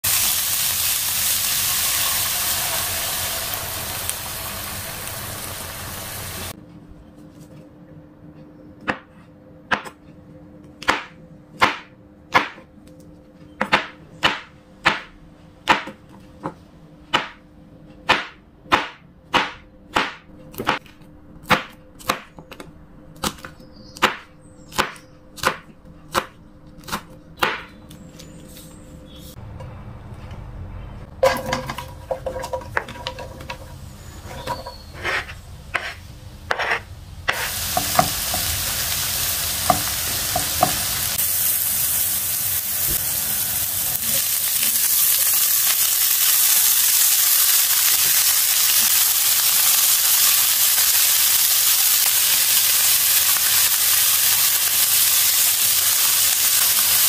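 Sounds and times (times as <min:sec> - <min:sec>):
mushrooms sizzling in a frying pan: 0:00.0 - 0:06.6, 0:35.6 - 0:57.0
knife chopping on cutting board: 0:35.0 - 0:38.1.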